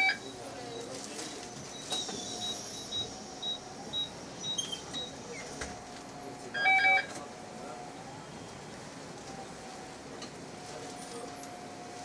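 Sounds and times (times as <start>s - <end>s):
bus background rumble: 0.0s - 12.0s
short high electronic beeps: 1.7s - 5.1s.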